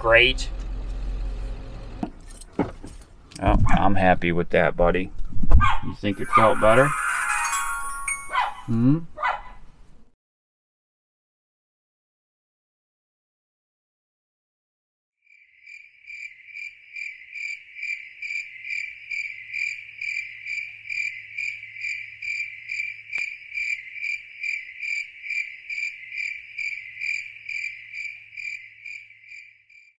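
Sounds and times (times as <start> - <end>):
insect chirping: 15.3 - 29.9.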